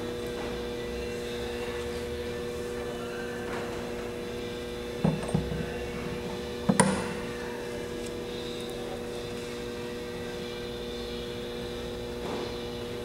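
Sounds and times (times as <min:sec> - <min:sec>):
electrical hum: 0:00.0 - 0:13.0
metal tool holder knocking on table: 0:05.0 - 0:05.6.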